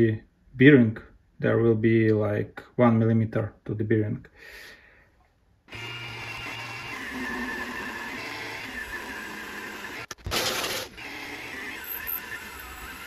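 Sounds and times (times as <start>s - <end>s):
milling machine cutting metal: 5.7s - 13.0s.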